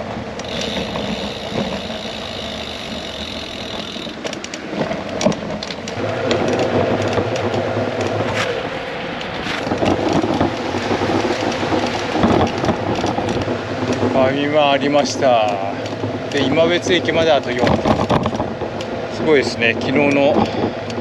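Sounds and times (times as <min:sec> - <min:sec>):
steady low hum: 0:00.0 - 0:04.5
road and wind noise: 0:00.0 - 0:21.0.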